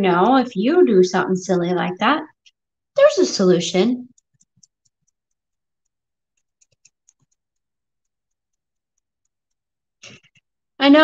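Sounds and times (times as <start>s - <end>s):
small clicks and taps of tape: 4.0s - 10.5s.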